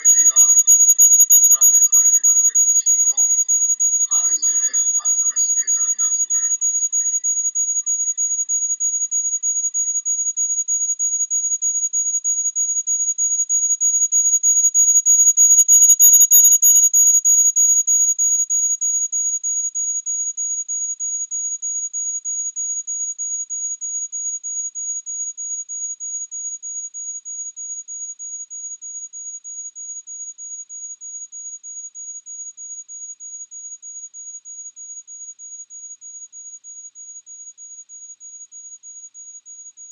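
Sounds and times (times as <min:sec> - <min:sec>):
pulsing high-pitched electronic tone: 0:00.0 - 0:07.4.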